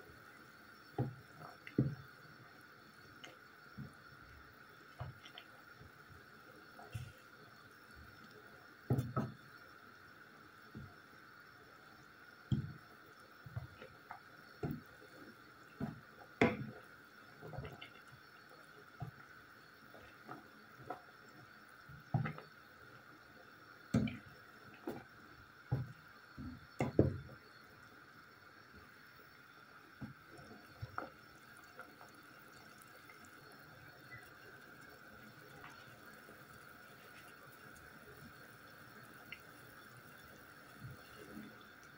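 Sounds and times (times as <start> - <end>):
simmering bubbling pops: 0.4 - 6.0, 12.4 - 22.8, 23.8 - 27.6, 29.9 - 41.9
water sloshing in pot: 13.6 - 19.2.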